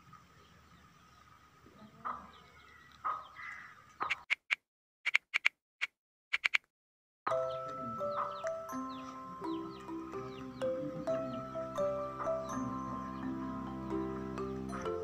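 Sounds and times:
music: 0:07.3 - 0:15.0.

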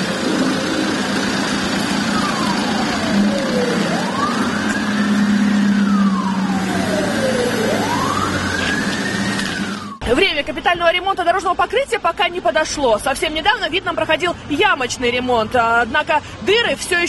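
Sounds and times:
wailing siren: 0:00.0 - 0:10.1
road traffic: 0:00.0 - 0:17.0.

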